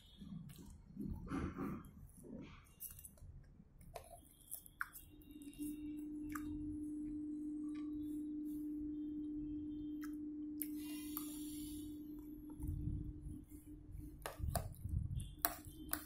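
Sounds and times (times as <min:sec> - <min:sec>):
chewing and mouth sounds: 0:00.0 - 0:06.6
steady low hum: 0:00.0 - 0:16.0.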